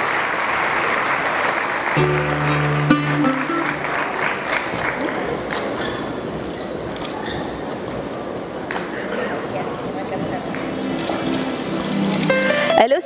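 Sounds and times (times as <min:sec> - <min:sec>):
large audience applauding: 0:00.0 - 0:06.2
held music notes: 0:02.0 - 0:04.6, 0:10.4 - 0:13.0.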